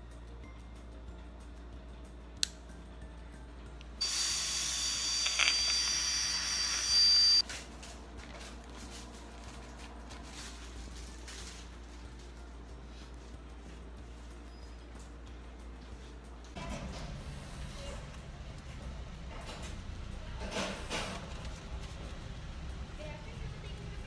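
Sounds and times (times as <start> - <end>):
dental handpiece whining: 4.0 - 7.4.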